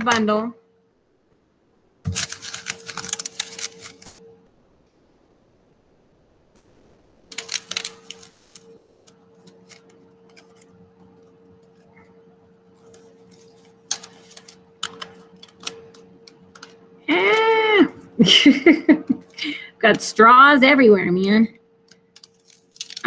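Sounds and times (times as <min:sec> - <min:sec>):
plastic straws rattling and clicking: 0:02.1 - 0:04.2, 0:12.8 - 0:16.8, 0:21.9 - 0:23.0
person humming: 0:17.1 - 0:18.0.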